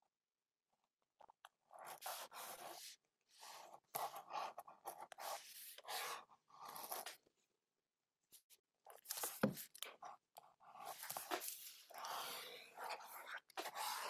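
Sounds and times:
pen scratching on paper: 0:01.7 - 0:07.2, 0:09.2 - 0:14.0.

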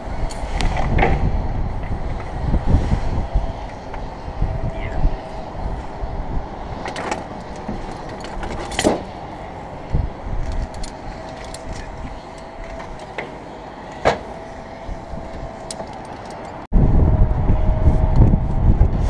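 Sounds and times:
wind rumble on microphone: 0:00.0 - 0:19.0
climbing hardware clicking: 0:06.8 - 0:09.1, 0:09.8 - 0:14.3, 0:15.2 - 0:16.7.

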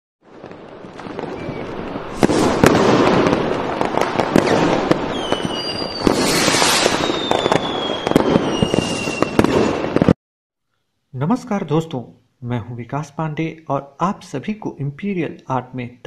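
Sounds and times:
fireworks crackling and popping: 0:00.2 - 0:10.2
fireworks whistles falling in pitch: 0:01.0 - 0:10.2.

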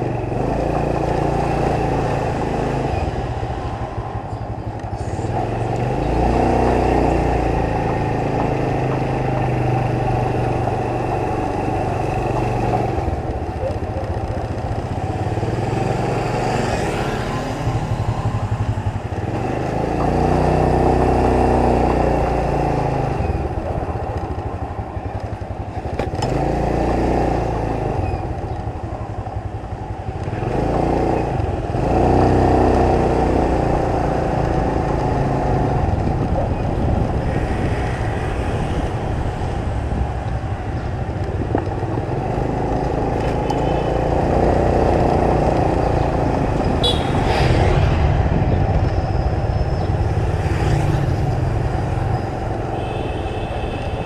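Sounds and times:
street traffic: 0:00.0 - 0:54.0
motorbike engine revving: 0:25.4 - 0:53.0.

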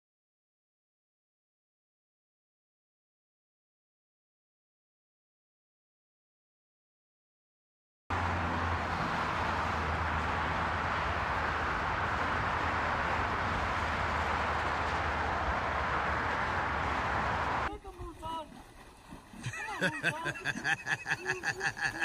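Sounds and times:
highway traffic roar: 0:08.1 - 0:17.7.

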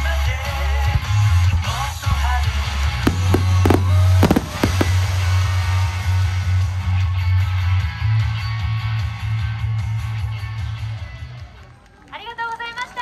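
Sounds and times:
firework bangs and crackles: 0:02.4 - 0:06.9.

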